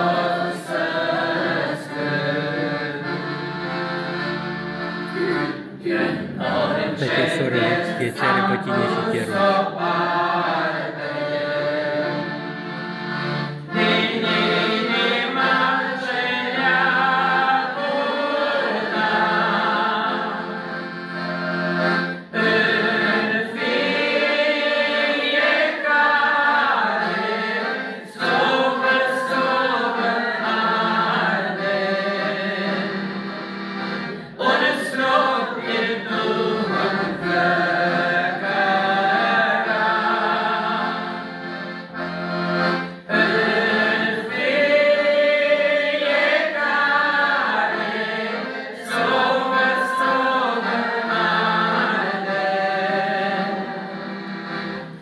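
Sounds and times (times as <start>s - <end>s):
piano accordion: 0.0s - 55.0s
man singing a hymn: 6.4s - 12.1s, 28.0s - 33.0s, 34.4s - 41.0s, 48.8s - 54.0s.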